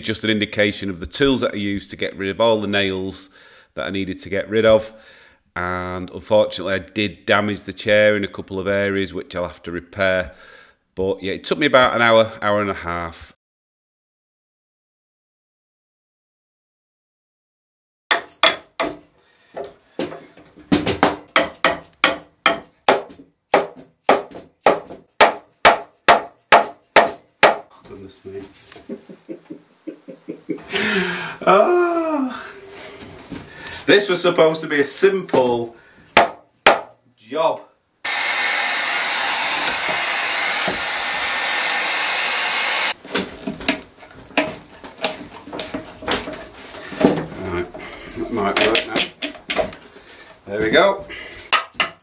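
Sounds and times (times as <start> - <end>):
mallet knocking wooden chair: 18.1 - 19.0
heat gun blowing: 38.0 - 43.0
wooden clicks and knocks: 43.1 - 47.4, 48.6 - 49.8.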